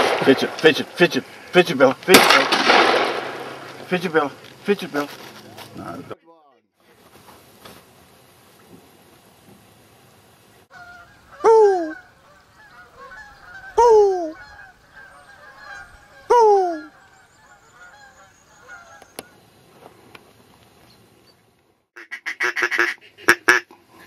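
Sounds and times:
geese honking: 10.7s - 19.4s, 22.0s - 23.8s.

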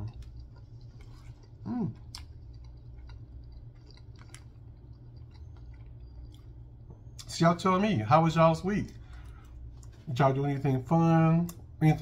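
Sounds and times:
person chewing food: 0.0s - 7.3s, 8.9s - 10.1s.

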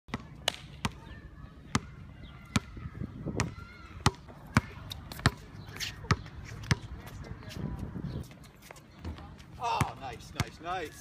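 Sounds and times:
basketball bouncing on hard court: 3.4s - 5.4s.

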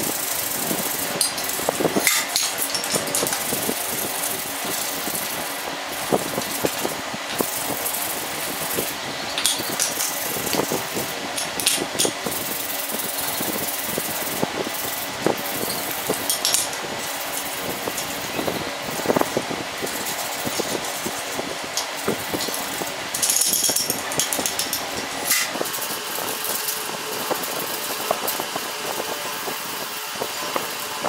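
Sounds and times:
steady background noise: 0.0s - 31.0s
metal parts clicking and knocking: 1.2s - 3.6s, 9.3s - 10.7s, 11.4s - 12.2s, 15.6s - 16.8s, 21.8s - 25.6s.

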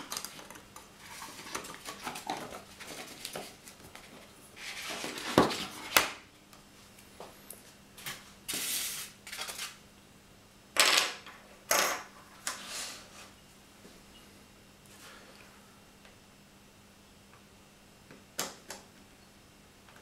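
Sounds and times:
scrapes and rubs of handling: 1.0s - 6.0s, 12.4s - 13.4s.

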